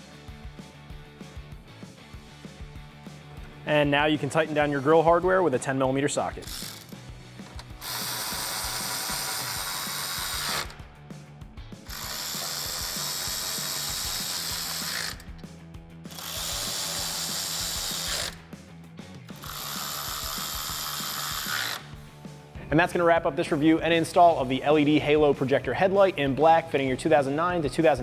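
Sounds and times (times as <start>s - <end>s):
cordless electric ratchet running: 6.4s - 10.8s, 11.8s - 18.5s, 19.3s - 22.0s.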